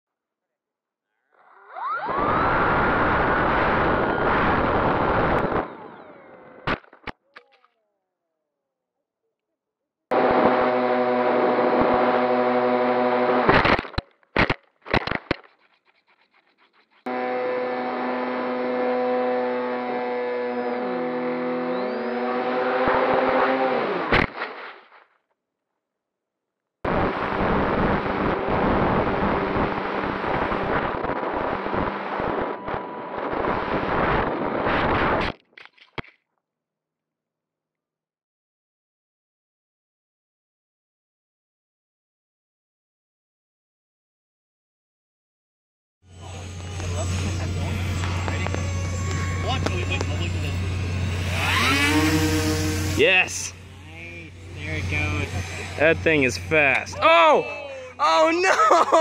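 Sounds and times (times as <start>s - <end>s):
electric motors and propellers: 1.5s - 7.2s, 10.1s - 24.4s, 26.9s - 36.1s, 46.0s - 58.0s
faint motor whine: 17.1s - 24.1s, 46.1s - 58.0s
short loud bursts: 17.1s - 24.9s
wind rushing over microphone: 27.0s - 35.3s.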